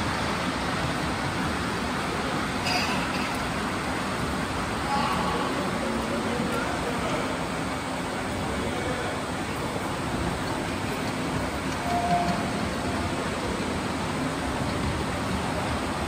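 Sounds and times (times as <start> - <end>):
miniature trains rumbling on track: 0.0 - 16.0
brief high-pitched tone: 11.8 - 12.6.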